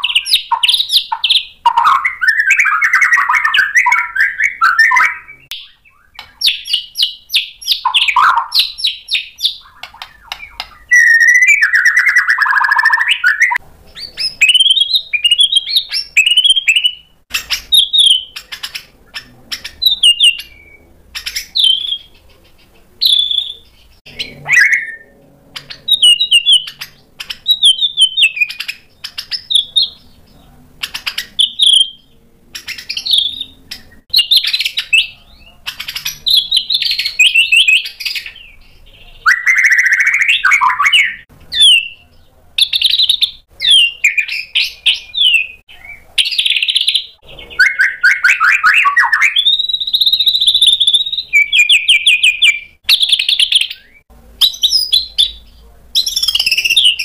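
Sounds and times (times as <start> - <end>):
bird singing whistles and trills: 0.0 - 22.4, 23.0 - 30.2, 30.8 - 42.0, 42.6 - 55.4, 56.0 - 57.0.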